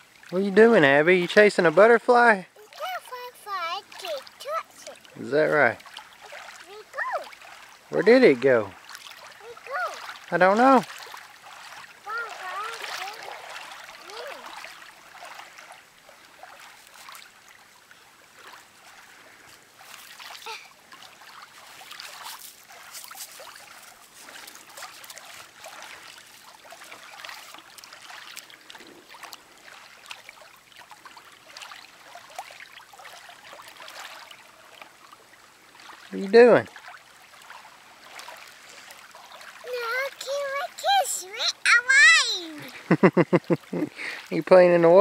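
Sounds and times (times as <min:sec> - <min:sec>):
water splashing at pebble shore: 0:00.0 - 0:45.0
small scattered splashes and clicks: 0:08.7 - 0:15.8, 0:16.4 - 0:17.6, 0:18.4 - 0:40.8.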